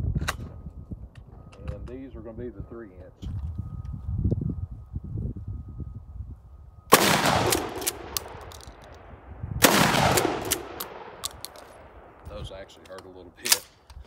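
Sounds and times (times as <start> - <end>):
shotgun shots: 6.9 - 8.7, 9.6 - 12.2
rolling echo: 6.9 - 12.4.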